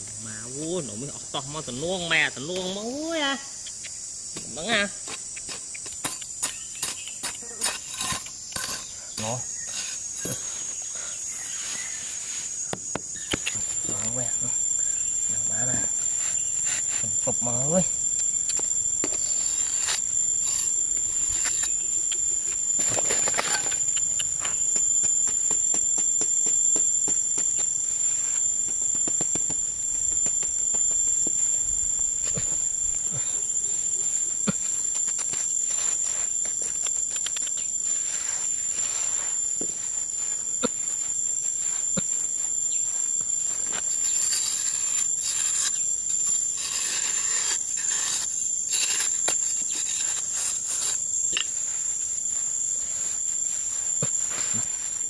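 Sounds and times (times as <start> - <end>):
insects droning: 0.0 - 55.0
hoe digging dry soil: 6.0 - 10.4, 13.3 - 39.7, 40.6 - 55.0.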